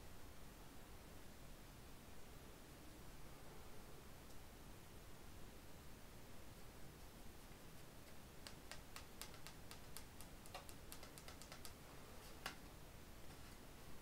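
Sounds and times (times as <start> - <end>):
cards being shuffled: 7.8 - 12.6.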